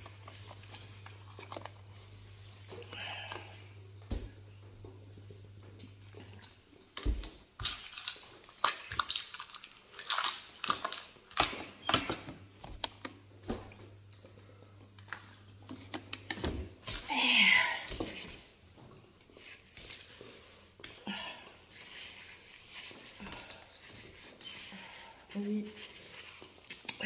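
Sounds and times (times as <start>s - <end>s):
person chewing food: 7.6s - 11.6s.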